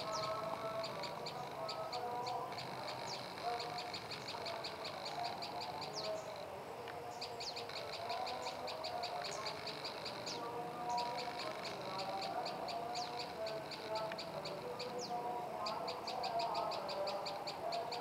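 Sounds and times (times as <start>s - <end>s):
songbird singing high chips: 7.1s - 18.0s.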